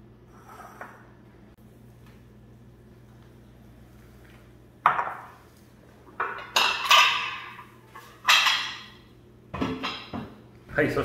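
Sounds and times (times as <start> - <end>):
ceramic dishes clattering on stone: 6.2 - 9.0.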